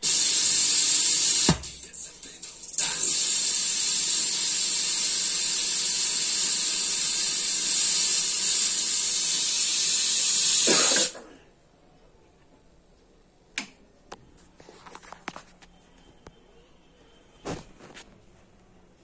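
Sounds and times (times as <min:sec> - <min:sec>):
radio static hiss: 0:00.0 - 0:05.1, 0:10.4 - 0:11.4.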